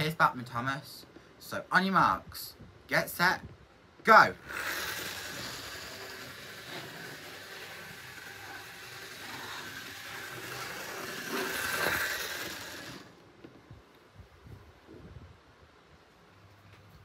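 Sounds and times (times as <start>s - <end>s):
model train motor whirring: 4.3s - 13.2s.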